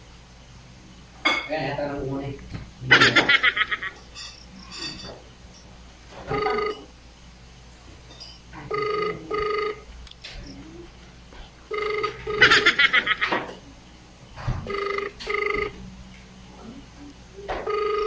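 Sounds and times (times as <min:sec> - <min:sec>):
phone ringback tone: 0:06.3 - 0:06.9, 0:08.7 - 0:09.9, 0:11.7 - 0:13.2, 0:14.6 - 0:15.8, 0:17.6 - 0:18.0
woman laughing: 0:12.4 - 0:13.4.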